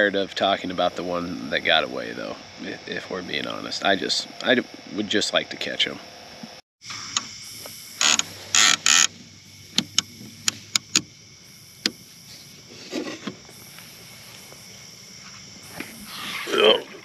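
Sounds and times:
fishing reel clicking: 0:08.0 - 0:09.1
rustling scrapes: 0:12.2 - 0:16.6.

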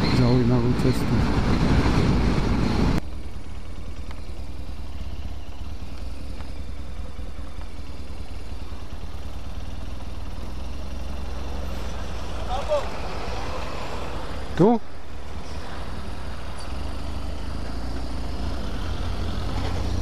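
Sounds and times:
wind rush: 0:00.0 - 0:03.0
motorcycle engine rumble: 0:00.0 - 0:20.0.

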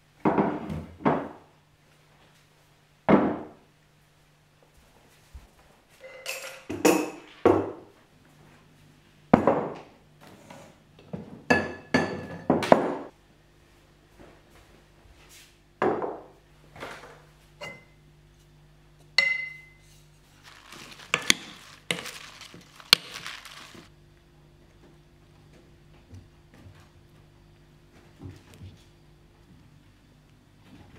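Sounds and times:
tableware clinking on a table: 0:06.0 - 0:07.6, 0:11.5 - 0:12.8, 0:17.6 - 0:18.0, 0:19.2 - 0:20.0
salad servers scraping a bowl: 0:19.8 - 0:23.9.

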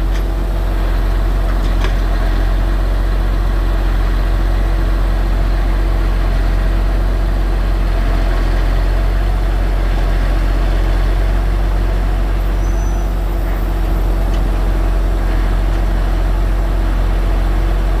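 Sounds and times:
vehicle engine running: 0:00.0 - 0:18.0.

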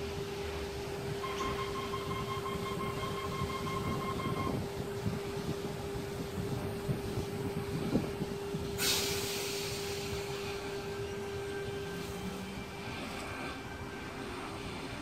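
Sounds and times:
electric train humming: 0:00.0 - 0:15.0
high steady tone: 0:01.2 - 0:04.8
compressed air hiss: 0:08.7 - 0:10.9.

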